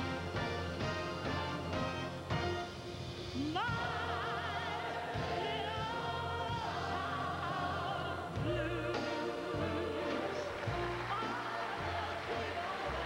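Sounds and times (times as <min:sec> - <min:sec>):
instrumental accompaniment with bass: 0:00.0 - 0:13.0
large chorus singing: 0:03.4 - 0:13.0
voices singing with vibrato: 0:03.4 - 0:13.0.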